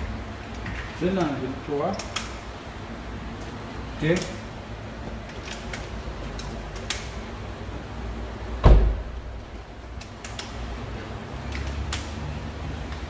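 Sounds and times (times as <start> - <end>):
car door shutting thump: 8.6 - 9.2.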